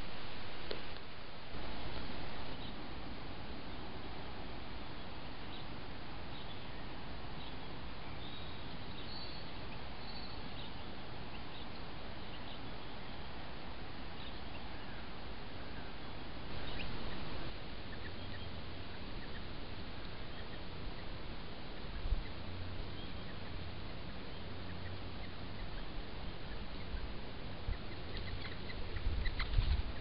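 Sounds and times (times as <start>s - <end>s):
microphone hiss: 0.0s - 30.0s
faint high chirps: 6.3s - 13.2s.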